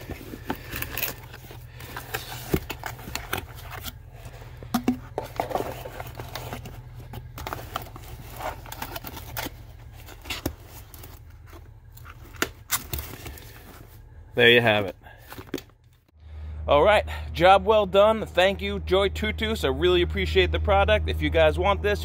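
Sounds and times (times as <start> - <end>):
cardboard box handled: 0.0 - 14.0
cardboard scraping and rustling: 0.0 - 14.1.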